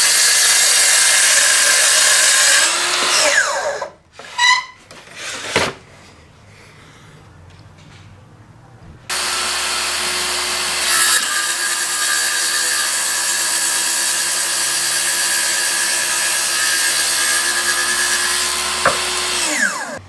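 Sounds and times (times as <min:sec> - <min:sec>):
circular saw cutting wood: 0:00.0 - 0:04.5, 0:09.1 - 0:20.0.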